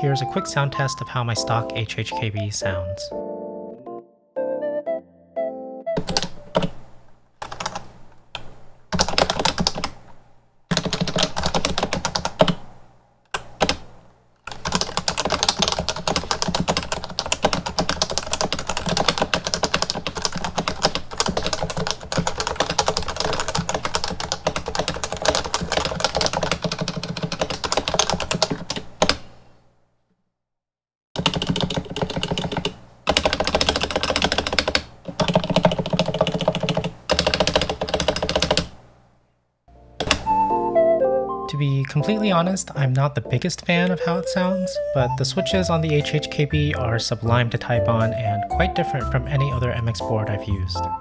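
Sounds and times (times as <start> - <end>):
keyboard typing: 6.0 - 6.8, 7.4 - 10.0, 10.7 - 12.6, 14.5 - 29.2, 31.2 - 38.7.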